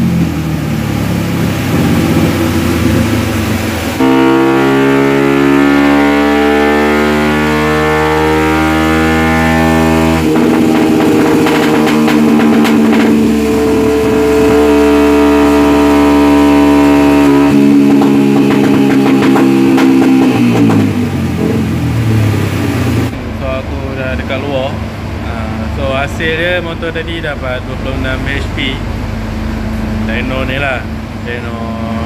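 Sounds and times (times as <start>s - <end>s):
motorcycle engine revving high: 0.0s - 23.6s.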